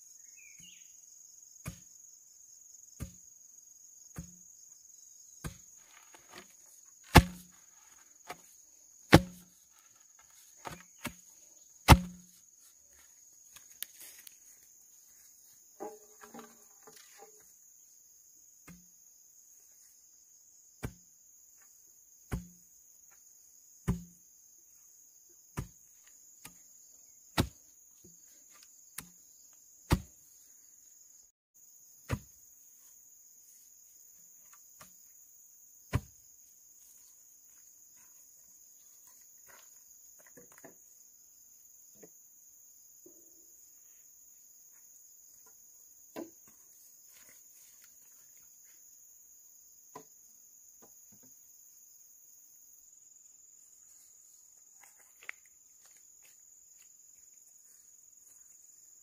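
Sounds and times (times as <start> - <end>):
insects chorus: 0.0 - 59.0
sharp strikes with dull thuds: 1.6 - 1.9, 7.1 - 7.5, 9.1 - 9.5, 11.8 - 12.4, 20.8 - 21.0, 22.3 - 22.6, 23.8 - 24.2, 27.4 - 27.6, 29.9 - 30.2, 32.1 - 32.4, 35.9 - 36.2.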